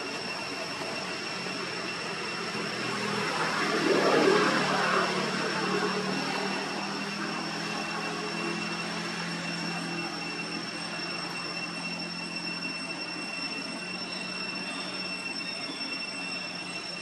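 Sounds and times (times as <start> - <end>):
faint high steady tones: 0.0 - 17.0
outdoor background drone: 0.0 - 17.0
rush of noise: 0.0 - 17.0.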